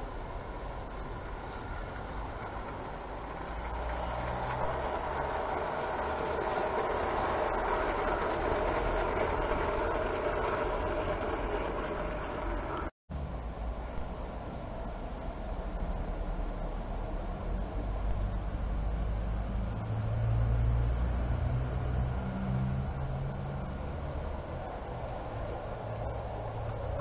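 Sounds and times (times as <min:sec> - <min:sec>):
model train motor and wheel hum: 0:00.0 - 0:27.0.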